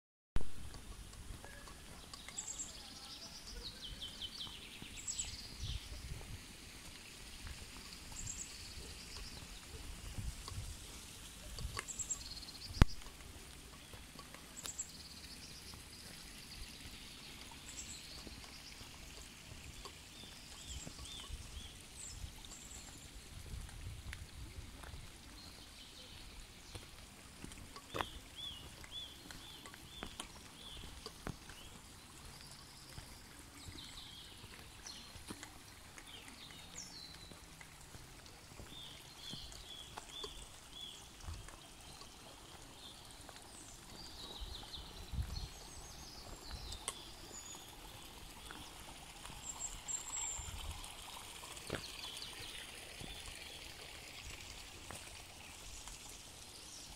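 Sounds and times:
small birds chirping: 0.6s - 56.9s.

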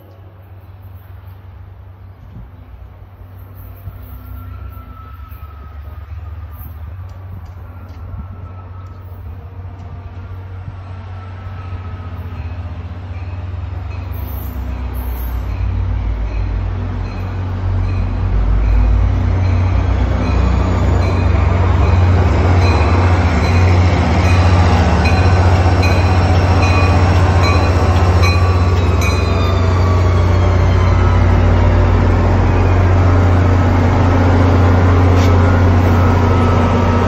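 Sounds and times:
diesel locomotive engine rumble: 0.0s - 37.0s.

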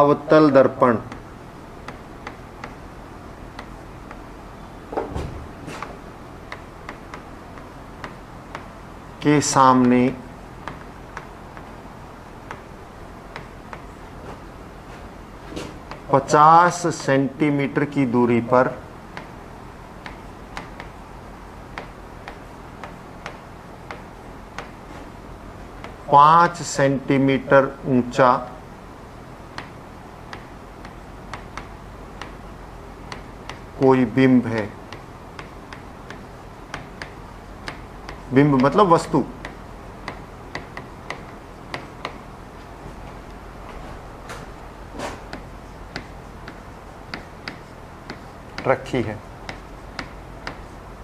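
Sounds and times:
faint low hum: 0.0s - 51.0s
loud knock: 4.9s - 5.8s
pen tapping on glass: 45.3s - 48.7s.

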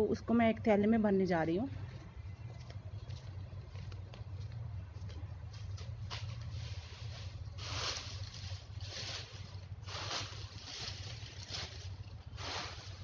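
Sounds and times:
dry leaves rustling and crackling: 5.4s - 13.0s.

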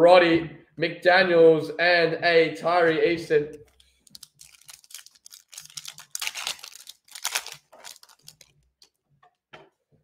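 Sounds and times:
foil wrapper crinkling and tearing: 3.6s - 8.9s.

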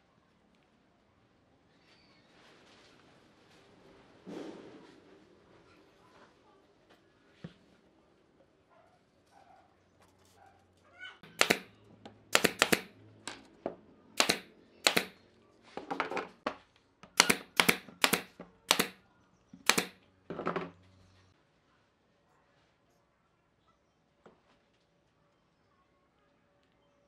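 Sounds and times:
nail gun firing: 11.2s - 11.7s, 12.3s - 12.9s, 14.2s - 15.2s, 17.1s - 19.0s, 19.6s - 20.0s.

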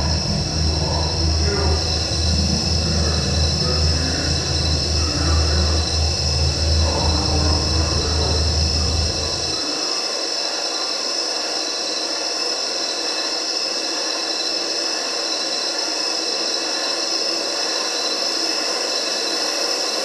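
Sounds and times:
faint steady tones: 0.0s - 9.8s.

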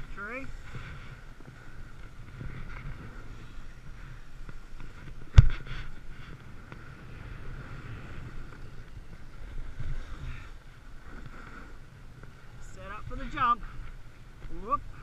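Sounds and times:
snowboard scraping over snow: 0.0s - 15.0s
wind on microphone: 0.0s - 15.0s.

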